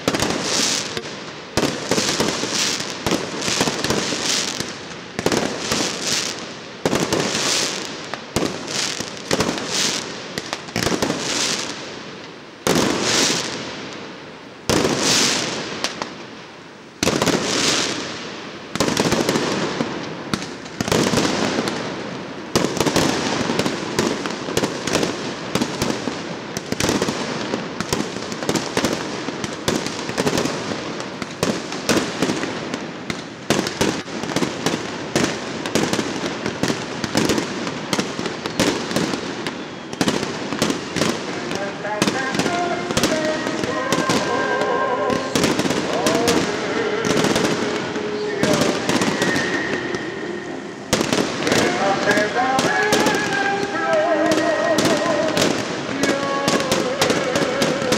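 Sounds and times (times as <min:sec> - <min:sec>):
fireworks crackling: 0:00.0 - 0:57.9
firework shells bursting with bangs: 0:17.0 - 0:57.9.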